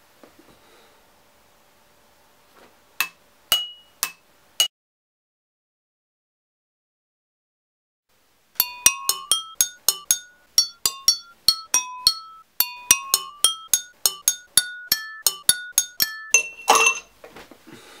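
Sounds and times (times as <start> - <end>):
glasses struck playing tune: 3.5 - 4.2, 8.6 - 17.1.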